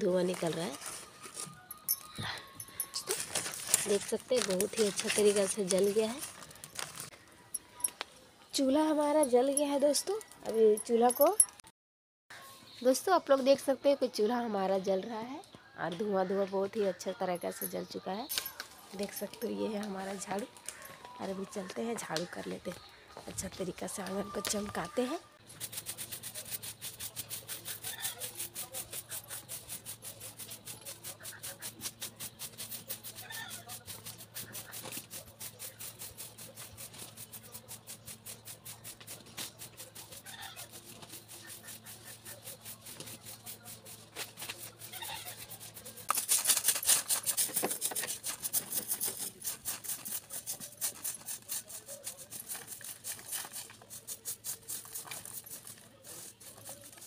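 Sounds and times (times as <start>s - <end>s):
broom sweeping earth: 25.4s - 57.0s.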